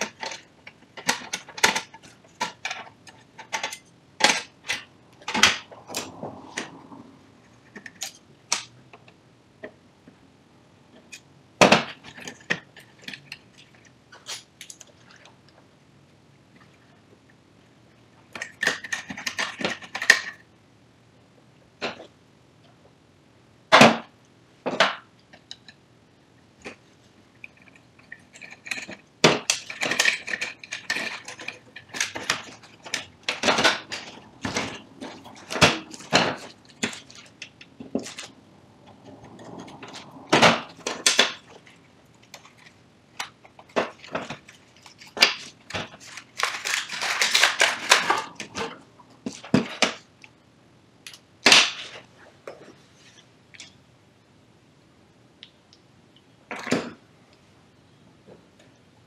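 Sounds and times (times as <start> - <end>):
plastic and metal parts clattering: 0.0 - 6.8, 11.0 - 15.1, 18.3 - 20.4, 27.4 - 38.4, 39.0 - 50.1.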